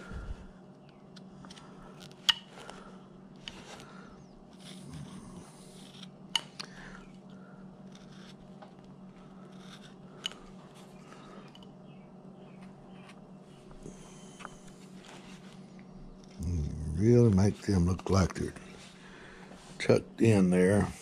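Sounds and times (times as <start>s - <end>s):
steady low hum: 0.0s - 21.0s
knife carving wood: 1.1s - 7.1s, 7.8s - 11.6s.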